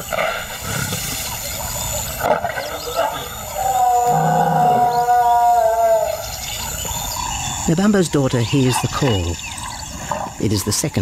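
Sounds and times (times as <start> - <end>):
lioness calling: 2.0 - 7.7.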